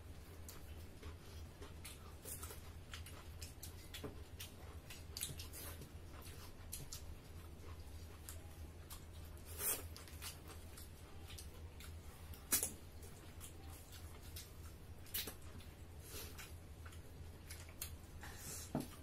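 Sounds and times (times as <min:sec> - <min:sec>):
people chewing and mouth smacks: 0:00.0 - 0:19.0
steady low hum: 0:00.0 - 0:19.0.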